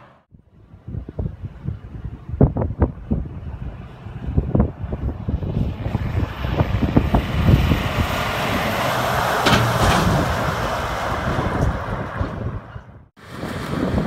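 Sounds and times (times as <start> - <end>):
wind buffeting microphone: 0.3 - 14.0
truck driving past: 5.7 - 12.9.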